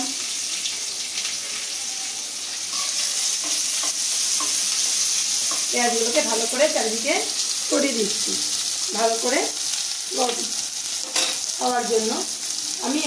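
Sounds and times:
onions sizzling in hot oil: 0:00.0 - 0:13.0
spoon knocking and scraping pan: 0:02.7 - 0:06.3, 0:11.0 - 0:11.5.

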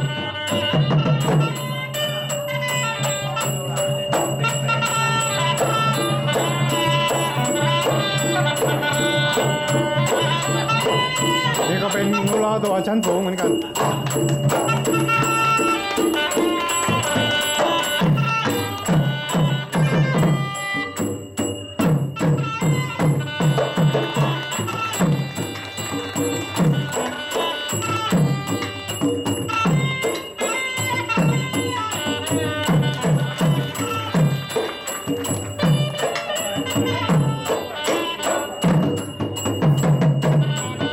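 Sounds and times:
held melodic notes: 0:01.4 - 0:39.2
fast drum strokes: 0:05.6 - 0:37.8.

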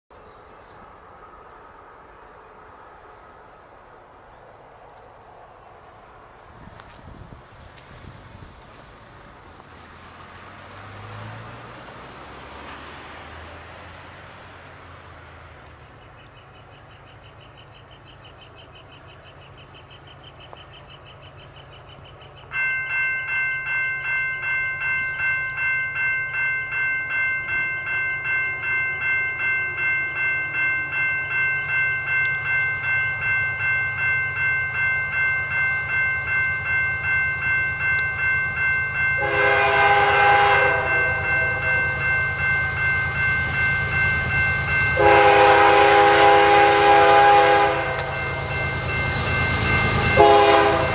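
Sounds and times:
electronic crossing bell dinging: 0:22.5 - 0:50.9
locomotive horn blasts: 0:39.1 - 0:42.9, 0:44.9 - 0:50.9.

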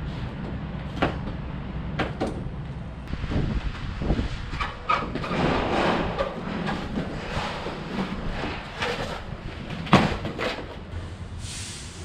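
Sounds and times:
demolition machinery rumbling: 0:00.0 - 0:11.4
sharp knocks and clanks: 0:04.5 - 0:10.8.

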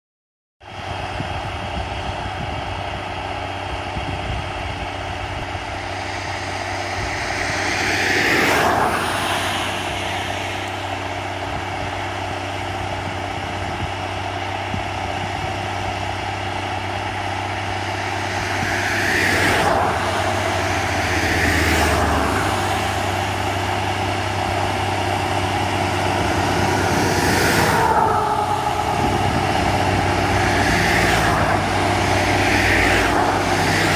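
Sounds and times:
tractor diesel engine running: 0:00.6 - 0:33.9
whoosh: 0:04.9 - 0:11.7, 0:16.4 - 0:33.9.

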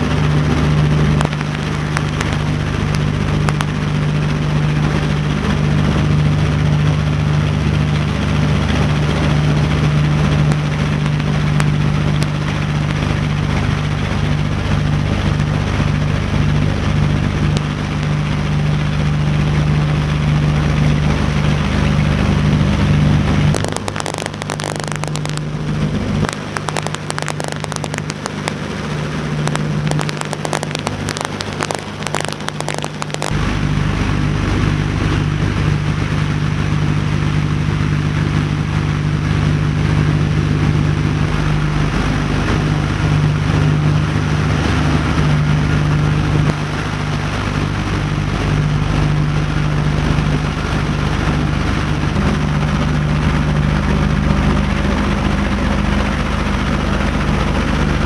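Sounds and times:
rapid crackle: 0:00.0 - 0:33.9
aircraft piston engines droning: 0:00.0 - 0:58.0.

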